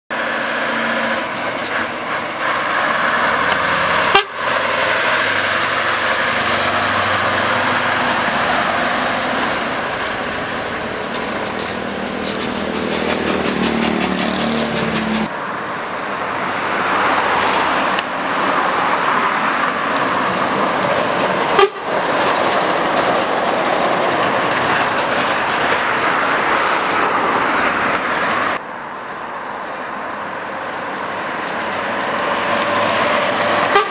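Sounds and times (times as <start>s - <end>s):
truck diesel engine driving by: 0.1s - 33.9s
truck horn: 3.6s - 4.6s, 21.6s - 22.0s, 33.6s - 33.9s.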